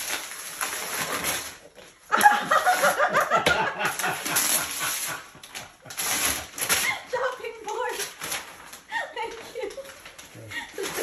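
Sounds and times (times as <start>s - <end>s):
wrapping paper rustling and tearing: 0.0s - 11.0s
people laughing: 2.1s - 5.8s.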